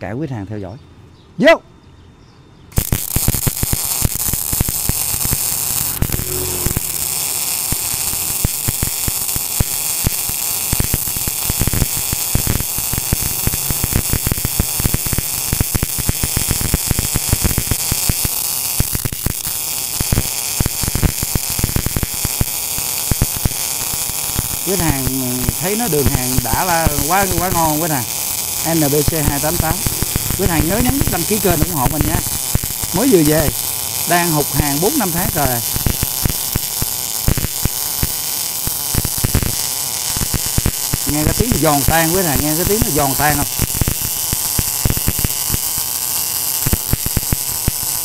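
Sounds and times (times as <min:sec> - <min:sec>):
welding arc crackling: 0:02.7 - 0:48.0.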